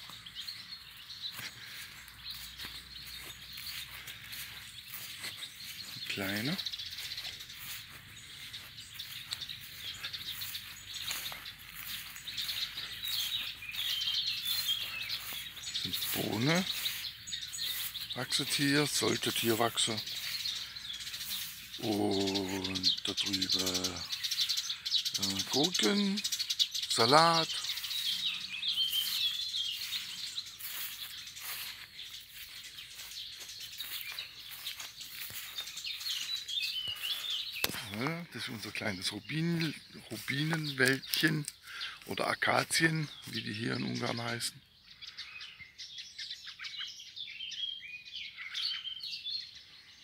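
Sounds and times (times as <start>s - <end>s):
steady outdoor hiss: 0.0s - 44.4s
small birds chirping: 0.0s - 50.0s.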